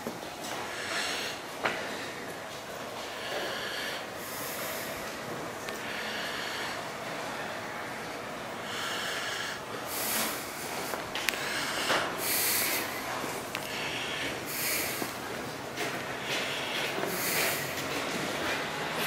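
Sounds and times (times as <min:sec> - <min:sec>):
steady background hiss: 0:00.0 - 0:19.0
person breathing close to microphone: 0:00.7 - 0:02.2, 0:03.1 - 0:05.1, 0:05.8 - 0:06.9, 0:08.6 - 0:15.4, 0:16.0 - 0:18.0.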